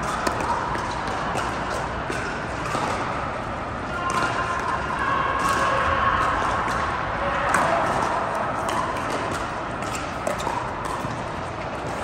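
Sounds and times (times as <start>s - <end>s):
paddles hitting plastic ball: 0.0s - 3.1s.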